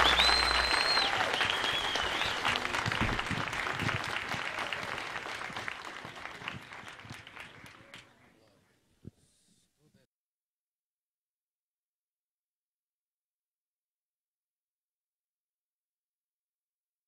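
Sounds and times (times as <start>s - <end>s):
audience clapping: 0.0s - 8.5s.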